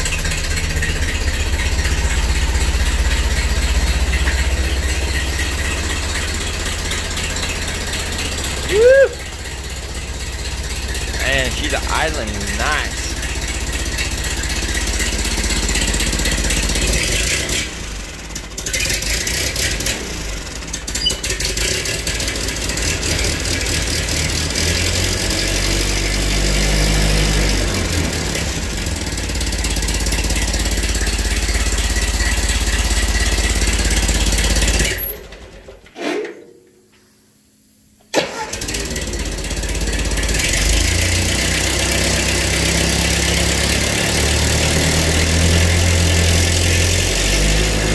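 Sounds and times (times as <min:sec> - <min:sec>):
exhaust leak: 0:00.0 - 0:35.0
tractor engine running: 0:00.0 - 0:35.6, 0:38.1 - 0:47.9.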